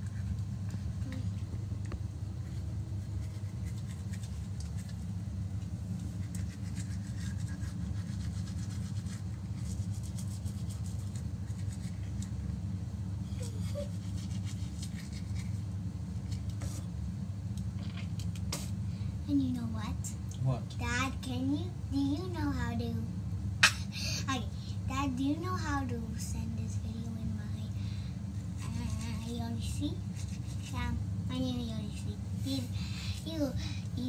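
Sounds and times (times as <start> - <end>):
steady low hum: 0.0 - 34.0
toothbrush scrubbing teeth: 3.0 - 5.1, 6.0 - 12.4, 13.3 - 15.7, 28.4 - 30.9.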